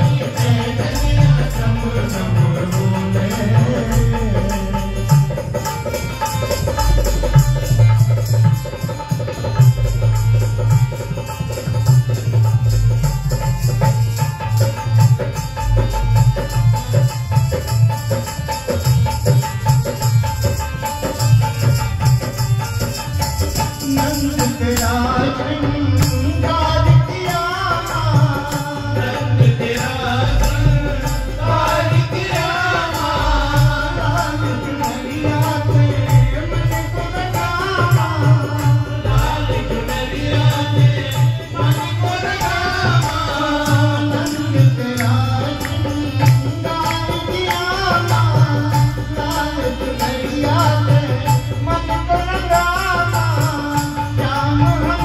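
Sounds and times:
man singing: 0.0s - 12.2s, 23.2s - 55.0s
harmonium melody: 0.0s - 55.0s.

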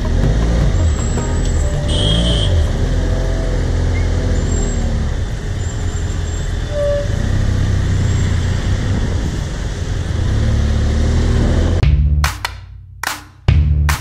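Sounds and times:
motorcycle engine running: 0.0s - 3.0s
city traffic: 0.0s - 13.2s.

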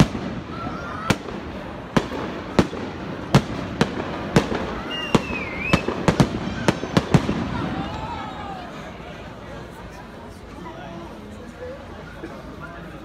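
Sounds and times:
fireworks bangs: 0.0s - 8.4s.

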